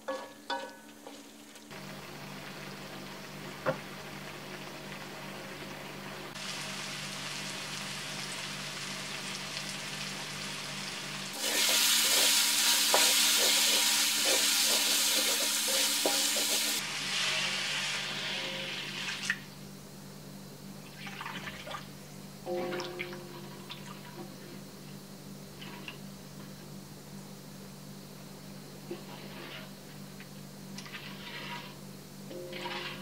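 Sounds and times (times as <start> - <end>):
food sizzling in a wok: 0.0 - 20.7, 28.8 - 33.0
metal spatula scraping pan: 12.9 - 17.5, 28.9 - 29.7, 30.9 - 33.0
steady low hum: 21.8 - 33.0.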